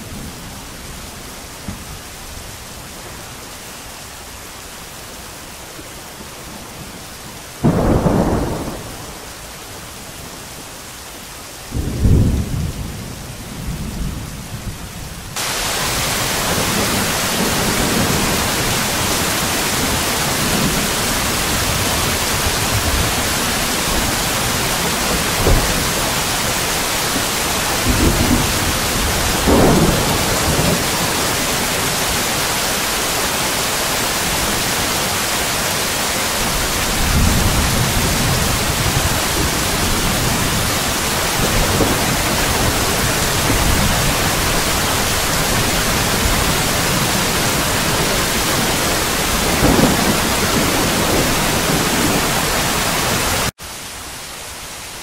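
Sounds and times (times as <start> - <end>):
rain falling: 0.0 - 55.0
thunder claps rolling: 7.6 - 9.3, 15.4 - 32.3, 36.4 - 53.5.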